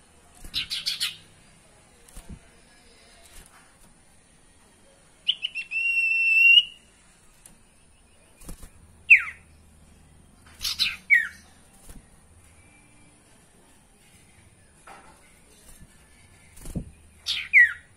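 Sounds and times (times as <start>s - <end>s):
songbird whistling: 5.3s - 6.8s, 9.1s - 9.4s, 17.3s - 17.9s.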